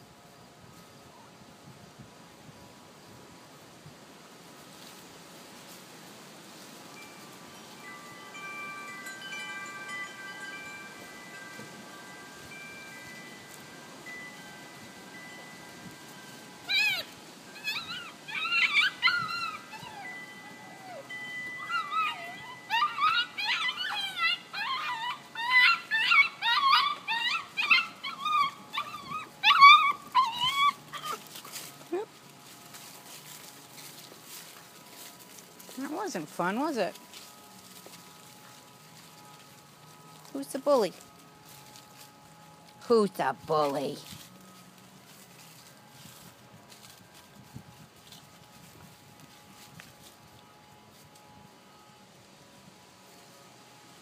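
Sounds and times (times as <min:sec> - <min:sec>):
faint outdoor hiss: 0:00.0 - 0:54.0
wind chimes ringing: 0:06.6 - 0:52.7
puppy whining and yelping: 0:16.6 - 0:32.1.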